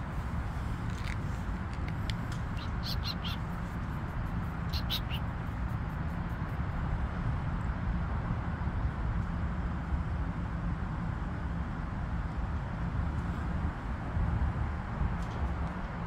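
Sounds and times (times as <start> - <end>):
low background rumble: 0.0 - 15.0
small bird chirping: 2.0 - 6.2.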